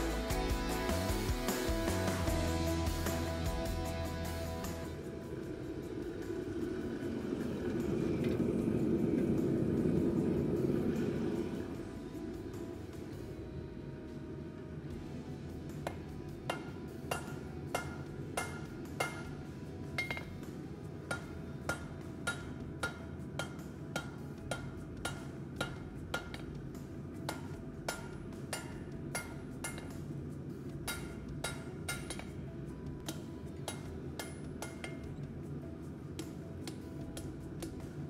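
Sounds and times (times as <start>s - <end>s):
low rumble: 1.8s - 15.7s
hammer striking steel on anvil: 15.7s - 30.1s, 30.8s - 32.4s, 33.0s - 35.2s, 36.1s - 37.9s.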